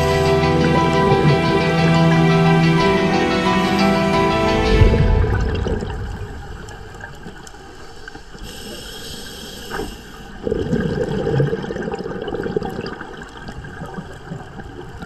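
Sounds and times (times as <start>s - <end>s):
water gurgling and sloshing: 3.8s - 8.8s.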